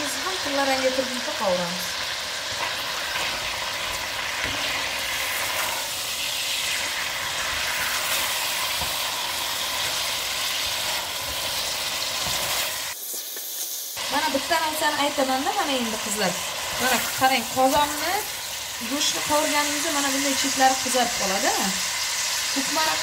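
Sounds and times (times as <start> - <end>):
meat and onions sizzling in oil: 0.0 - 23.0
spatula scraping: 2.5 - 13.5.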